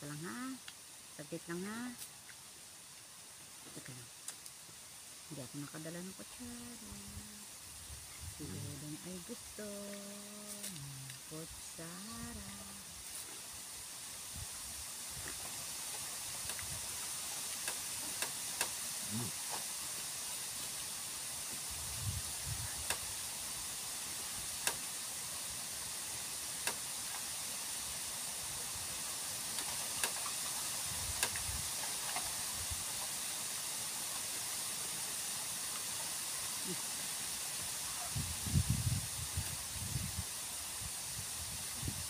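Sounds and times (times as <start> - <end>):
steady high hiss: 0.0 - 42.0.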